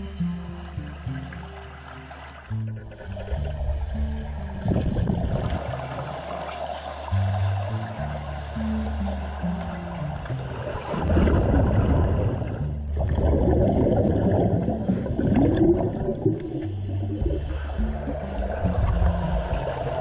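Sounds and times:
background music with low notes: 0:00.0 - 0:20.0
bubbles gurgling underwater: 0:02.7 - 0:06.6, 0:09.4 - 0:20.0.

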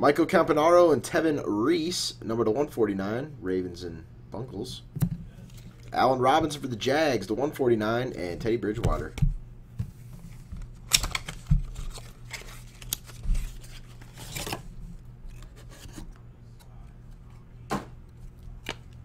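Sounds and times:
cards sliding and snapping: 0:10.6 - 0:14.6.

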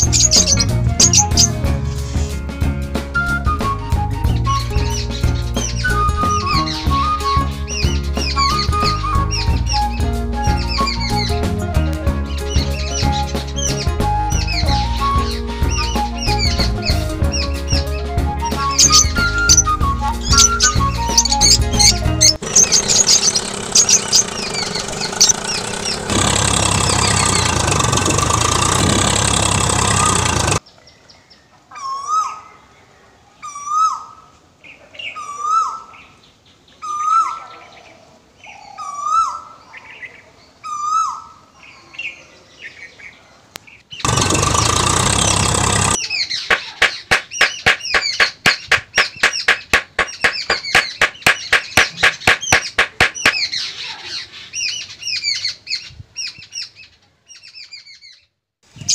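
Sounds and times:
bird repeating hooked call: 0:00.0 - 0:01.5, 0:18.8 - 0:30.6, 0:44.1 - 0:53.5
fast dense bird chirping: 0:00.0 - 0:02.2, 0:12.3 - 0:18.0, 0:18.6 - 0:30.6, 0:44.0 - 0:56.8.

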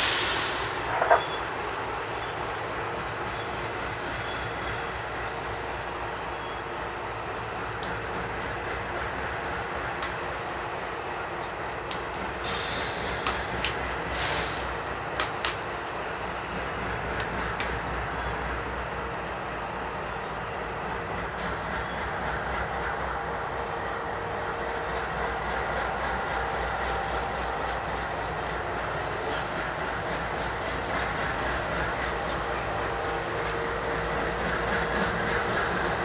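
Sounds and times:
freight train rumbling: 0:00.0 - 0:36.0
steel wheels clicking over rails: 0:00.0 - 0:36.0
sharp clicks: 0:14.6 - 0:15.6.

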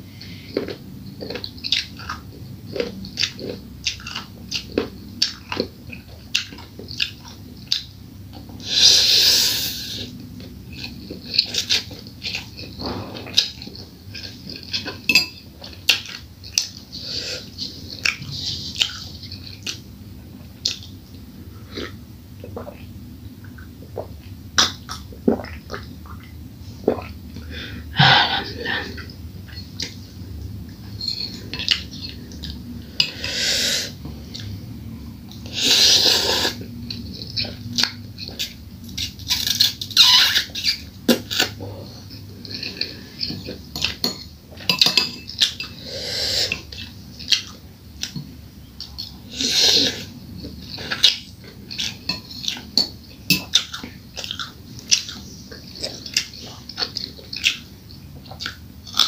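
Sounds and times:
mouth sounds of eating: 0:15.6 - 0:48.2, 0:48.8 - 0:59.0.

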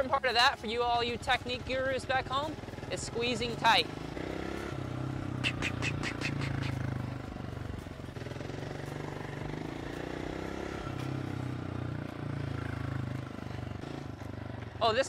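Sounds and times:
dirt bike engine running: 0:00.0 - 0:15.0
sharp ticks: 0:05.4 - 0:07.2.

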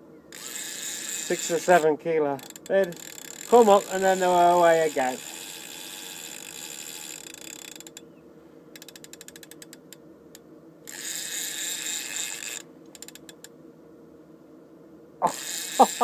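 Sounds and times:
fishing reel ratchet clicking: 0:00.4 - 0:08.0, 0:08.8 - 0:10.0, 0:10.9 - 0:13.5, 0:15.3 - 0:16.0.

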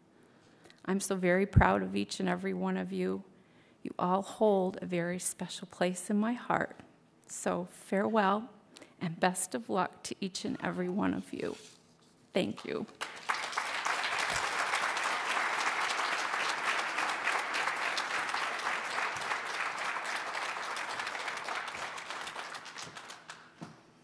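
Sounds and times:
audience applauding: 0:13.0 - 0:23.6.

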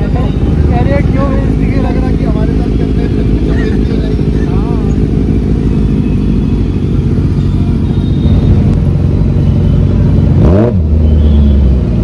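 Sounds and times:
motorcycle engines idling: 0:00.0 - 0:12.0.

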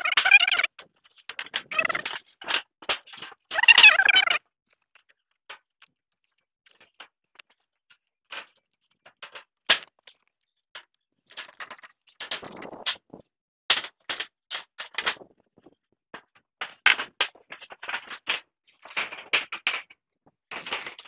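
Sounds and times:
plastic pipe crinkling and rustling: 0:00.0 - 0:21.0.

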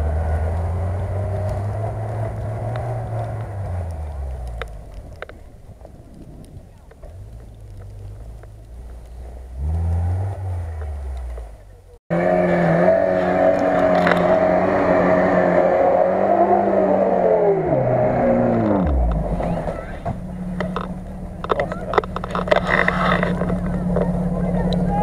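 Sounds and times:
car engine revving hard: 0:00.0 - 0:04.6, 0:09.6 - 0:11.4, 0:12.1 - 0:21.6
quieter low engine sound: 0:00.0 - 0:25.0.

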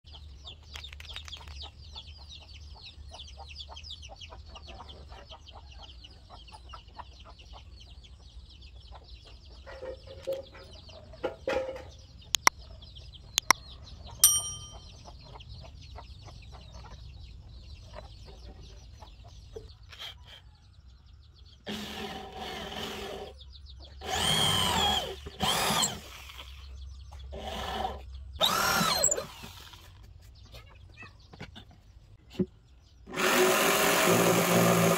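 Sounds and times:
sharp clicks: 0:00.6 - 0:01.7, 0:12.3 - 0:12.6, 0:13.4 - 0:13.6
high chattering: 0:14.2 - 0:15.0
electric drill boring into wood: 0:21.6 - 0:23.4, 0:24.0 - 0:26.6, 0:27.3 - 0:29.8, 0:33.1 - 0:34.9.

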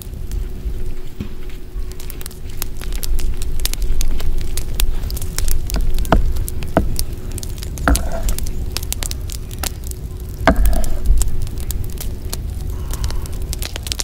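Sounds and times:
low rumble: 0:00.0 - 0:14.0
wood fire crackling: 0:00.0 - 0:14.0
loud knocks: 0:05.8 - 0:07.0, 0:07.9 - 0:08.4, 0:10.5 - 0:11.1.

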